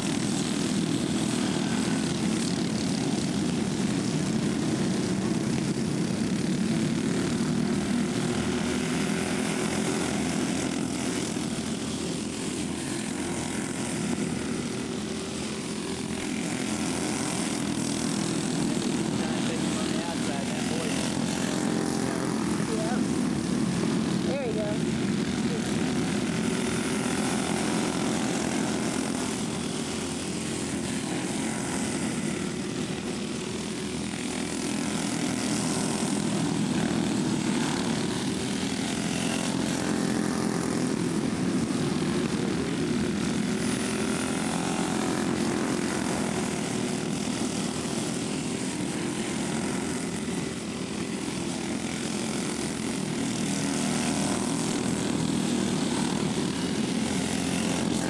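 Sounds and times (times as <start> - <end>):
racing kart engines buzzing: 0.0 - 58.0.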